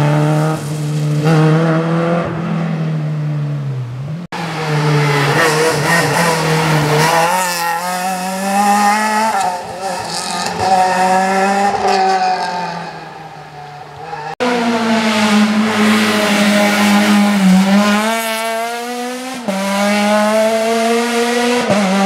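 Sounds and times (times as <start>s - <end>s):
rally car engine revving: 3.9s - 13.2s, 14.0s - 22.0s.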